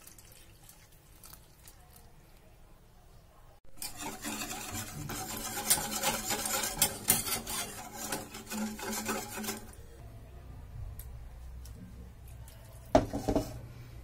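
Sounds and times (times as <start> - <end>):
whisk scraping a steel saucepan: 3.7 - 10.0.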